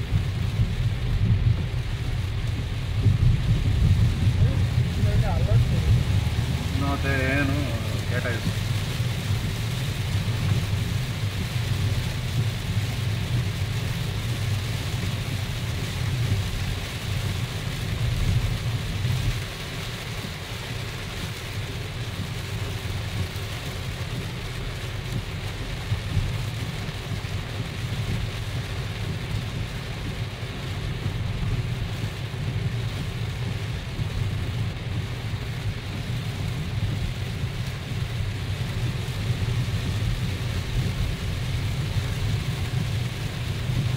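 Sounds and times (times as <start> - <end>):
car rumbling on wet road: 0.0 - 43.9
heavy rain on car windscreen: 0.0 - 43.9.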